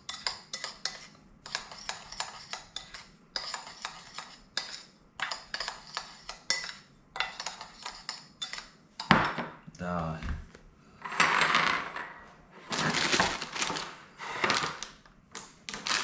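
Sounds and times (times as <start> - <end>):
utensil scraping a bowl: 0.0 - 8.8.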